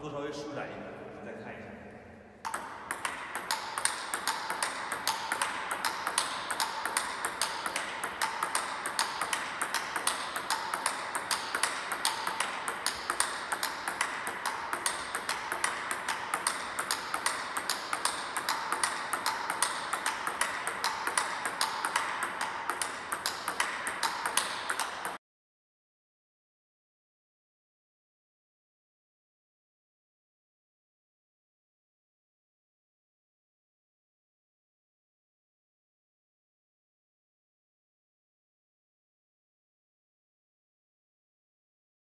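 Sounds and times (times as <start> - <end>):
table tennis ball clicks: 2.4 - 25.2.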